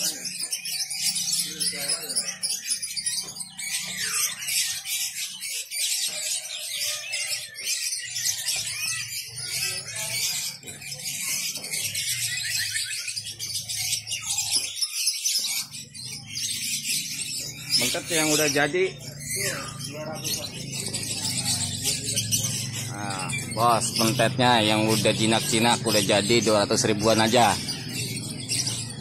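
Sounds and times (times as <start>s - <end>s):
low background murmur: 0.0s - 29.0s
songbirds chirping and singing: 0.0s - 29.0s.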